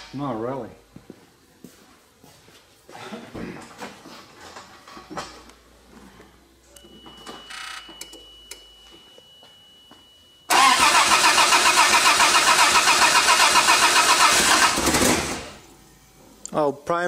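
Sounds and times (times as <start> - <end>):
engine starter cranking: 10.5 - 15.6.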